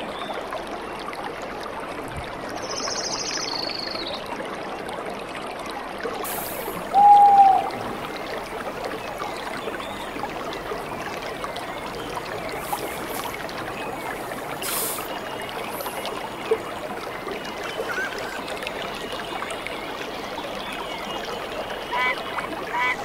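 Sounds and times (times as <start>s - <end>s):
hissy bursts: 6.3s - 6.8s, 14.6s - 15.1s.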